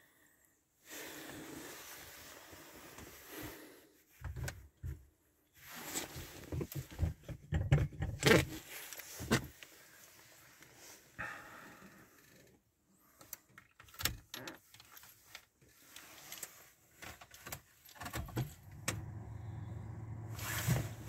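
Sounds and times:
knocks and thumps in car: 0:06.6 - 0:08.4.

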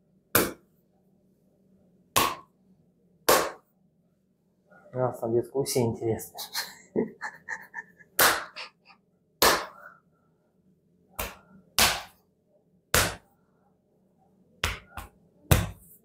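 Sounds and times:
hand slapping bare back: 0:00.4 - 0:00.6, 0:02.2 - 0:02.5, 0:03.3 - 0:03.6, 0:08.2 - 0:08.6, 0:09.4 - 0:09.8, 0:11.2 - 0:12.2, 0:12.9 - 0:13.2, 0:14.6 - 0:15.9.

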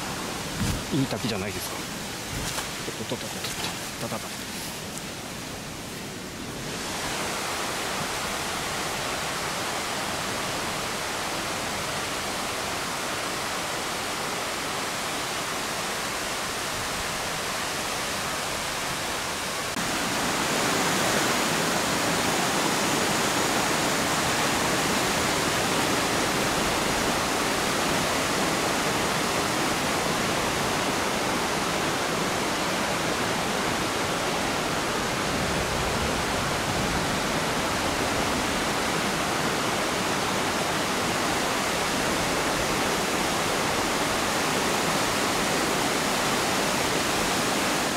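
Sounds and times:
water splashing over boulders: 0:00.0 - 0:05.4
waterfall rushing: 0:00.0 - 0:47.9.

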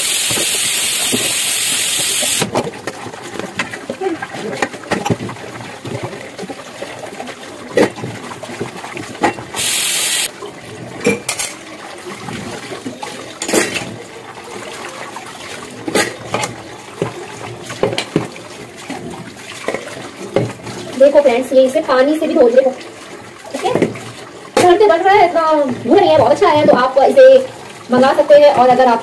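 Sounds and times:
scrubbing dishes: 0:00.0 - 0:29.0
water splashing: 0:00.0 - 0:29.0
dishes and lids clinking: 0:11.0 - 0:11.6, 0:13.4 - 0:13.9.

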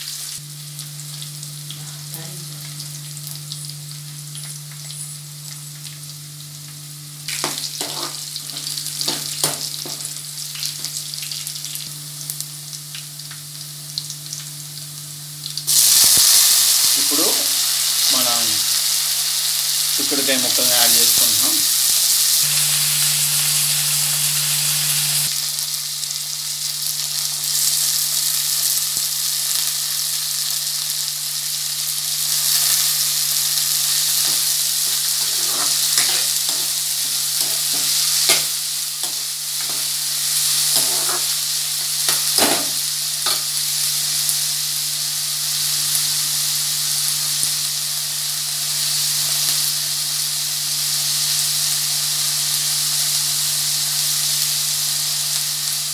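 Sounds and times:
beans sizzling in hot oil: 0:00.0 - 0:55.9
steady low hum: 0:00.3 - 0:16.7
spatula scraping and knocking pan: 0:07.4 - 0:10.2, 0:34.1 - 0:43.5.

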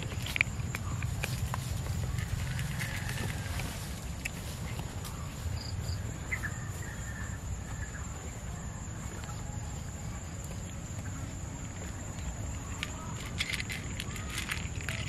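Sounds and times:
faint bird chirp: 0:04.6 - 0:10.4.

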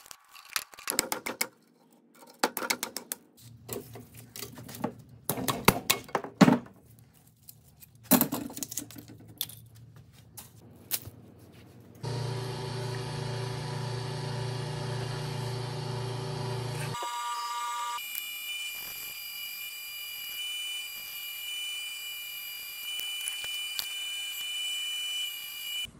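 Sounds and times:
electric gear motor humming: 0:12.0 - 0:25.9.

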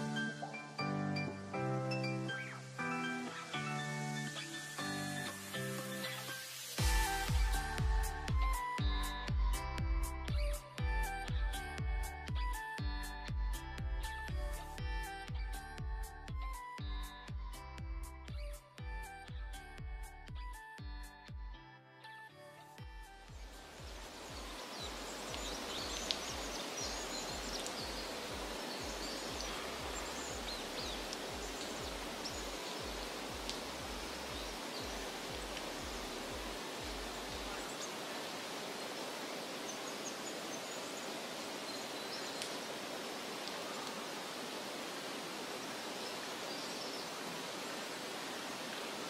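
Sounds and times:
river water flowing: 0:00.0 - 0:20.8, 0:22.6 - 0:49.0
low background music beat: 0:06.8 - 0:21.6.

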